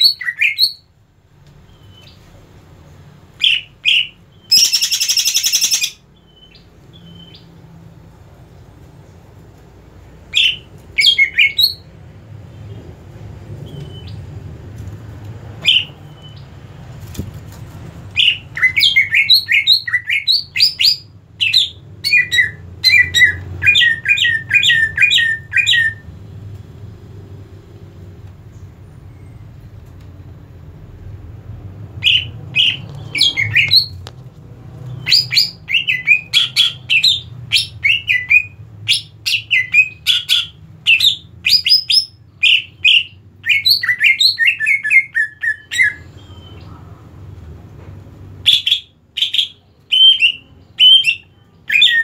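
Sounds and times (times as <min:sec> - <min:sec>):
bird chirping: 0:00.0 - 0:00.9, 0:01.5 - 0:02.5, 0:03.4 - 0:09.2, 0:10.0 - 0:14.5, 0:15.6 - 0:16.8, 0:18.1 - 0:26.3, 0:28.4 - 0:30.6, 0:31.9 - 0:34.1, 0:34.7 - 0:47.1, 0:48.4 - 0:52.0.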